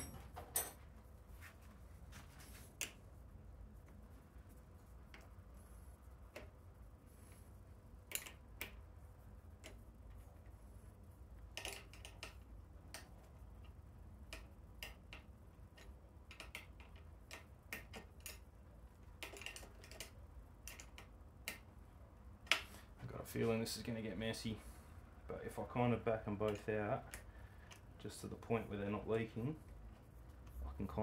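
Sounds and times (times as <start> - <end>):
faint low hum: 0.0 - 31.0
hand tools clicking and tapping: 11.5 - 18.4, 19.2 - 21.7.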